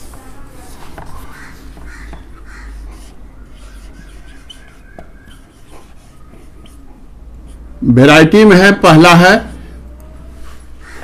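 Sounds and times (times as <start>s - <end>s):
whiteboard duster rubbing: 0.0s - 7.7s
marker squeaking on whiteboard: 0.0s - 7.8s.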